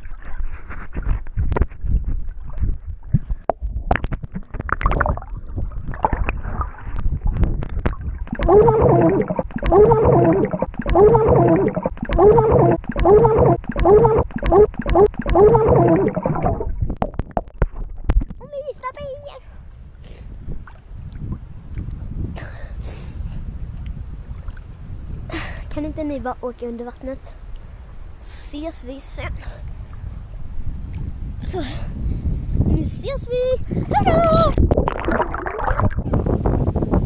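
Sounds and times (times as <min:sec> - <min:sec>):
bubbling water: 0:03.6 - 0:17.6, 0:34.7 - 0:36.1
underwater thumps: 0:07.5 - 0:18.4
muffled child's voice underwater: 0:08.3 - 0:16.7, 0:18.4 - 0:19.5, 0:32.7 - 0:34.7.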